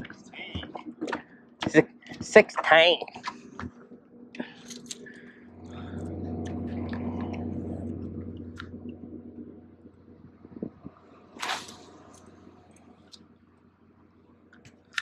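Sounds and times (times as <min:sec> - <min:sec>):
low motor drone: 0:03.4 - 0:15.0.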